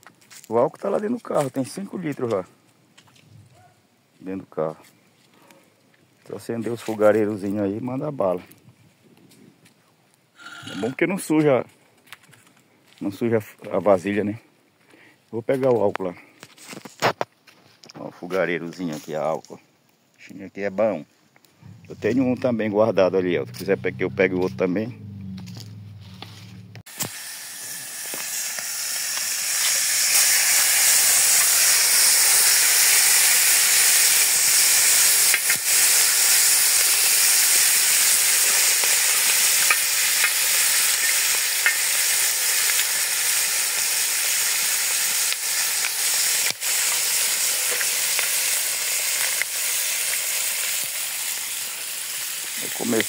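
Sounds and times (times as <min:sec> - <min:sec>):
fish sizzling in hot oil: 0:26.9 - 0:53.0.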